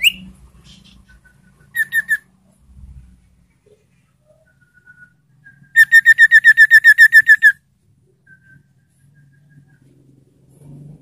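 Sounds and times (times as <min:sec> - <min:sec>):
bird rapid whistled notes: 0:00.0 - 0:02.2, 0:04.4 - 0:07.6.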